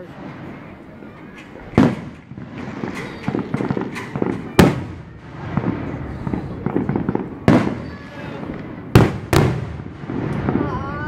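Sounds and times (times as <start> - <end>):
firework booms: 0.0 - 11.0
firework pops and crackles: 0.2 - 11.0.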